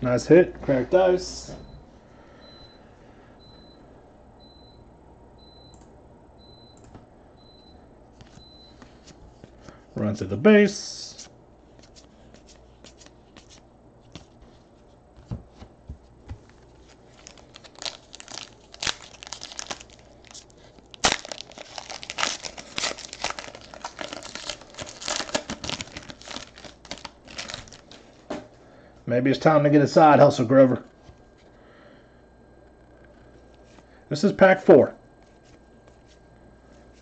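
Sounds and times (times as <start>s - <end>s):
foil wrapper tearing and crinkling: 17.0s - 28.0s.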